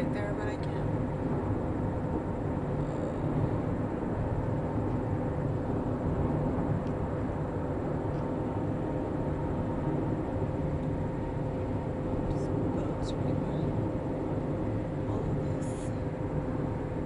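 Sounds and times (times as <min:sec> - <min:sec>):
car road and engine noise: 0:00.0 - 0:17.0.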